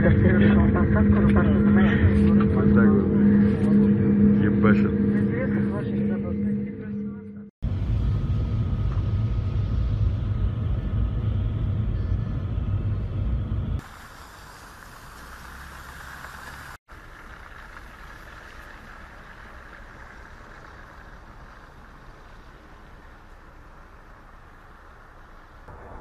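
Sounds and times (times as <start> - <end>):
engine and tyre rumble: 7.6 - 26.0
steady rushing hiss: 13.8 - 16.8.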